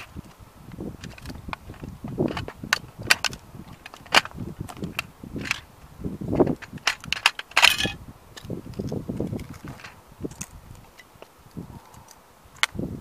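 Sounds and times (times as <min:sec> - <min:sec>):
plastic model cracking underfoot: 0:01.0 - 0:05.7, 0:06.4 - 0:11.3.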